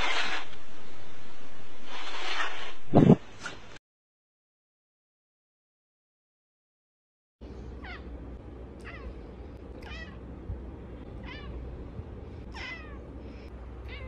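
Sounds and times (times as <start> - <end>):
cat meowing: 8.8 - 9.2, 9.8 - 10.2, 11.2 - 11.6, 12.5 - 13.0.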